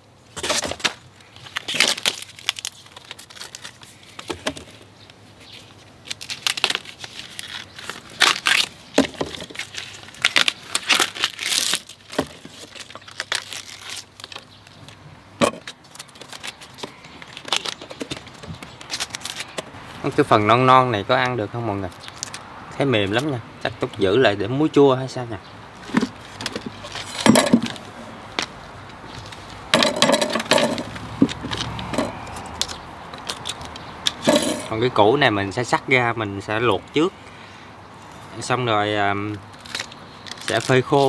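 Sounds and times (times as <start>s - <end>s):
bamboo sheaths tearing and crackling: 0.4s - 20.4s, 21.2s - 22.5s, 25.8s - 35.0s, 39.1s - 41.0s.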